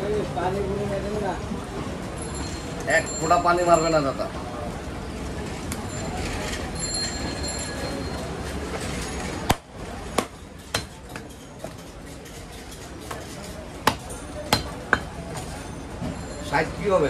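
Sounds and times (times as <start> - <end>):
cleaver chopping ribs on wooden block: 9.5 - 11.8, 13.0 - 15.1.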